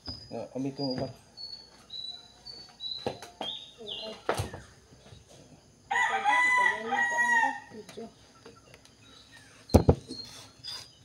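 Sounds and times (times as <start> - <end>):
rooster crowing: 5.9 - 7.7.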